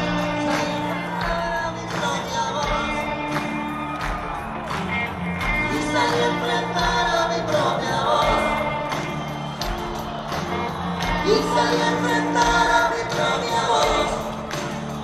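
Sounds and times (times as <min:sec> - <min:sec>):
person singing: 0:00.0 - 0:03.7, 0:05.5 - 0:09.2, 0:11.0 - 0:15.0
live rock band: 0:00.0 - 0:15.0
steady drum beat: 0:00.0 - 0:15.0.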